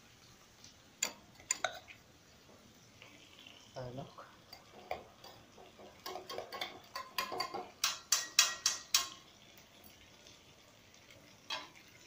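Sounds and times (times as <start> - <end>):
metal spoon clanking on cookware: 4.5 - 9.3, 11.5 - 11.8.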